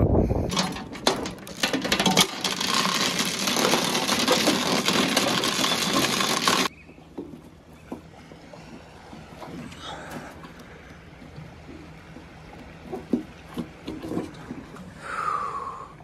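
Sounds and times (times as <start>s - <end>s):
anchor chain rattling over metal: 0.5s - 6.7s.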